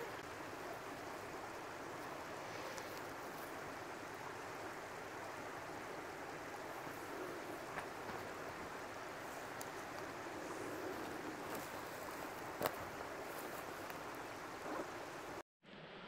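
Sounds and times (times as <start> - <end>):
flowing water rushing: 0.0 - 15.4
faint clicks: 9.5 - 10.1.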